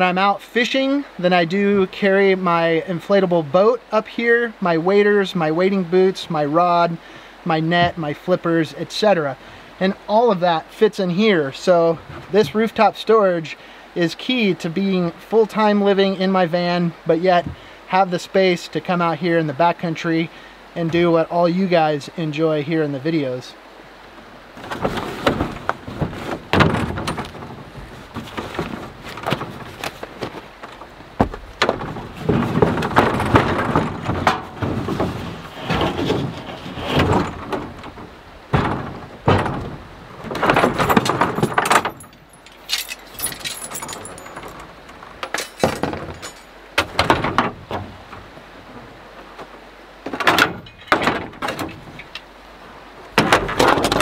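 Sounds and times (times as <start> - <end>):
rustling: 24.1 - 52.3
knocks and clatter of gear: 24.6 - 48.4, 49.2 - 52.3, 53.2 - 54.0.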